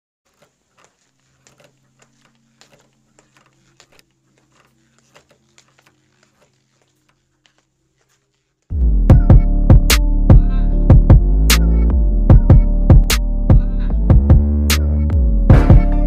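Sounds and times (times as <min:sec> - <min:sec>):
old film crackles and pops: 0:00.3 - 0:08.7.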